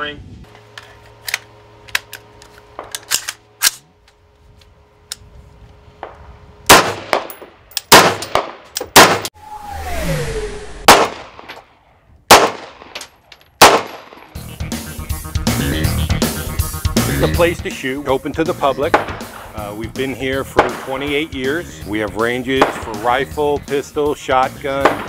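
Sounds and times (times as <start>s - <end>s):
rifle shots: 6.7s - 9.3s, 10.8s - 11.6s, 12.3s - 14.4s, 18.9s - 19.5s, 20.6s - 21.2s, 22.6s - 23.2s, 24.8s - 25.0s
short falling whine: 9.2s - 11.8s.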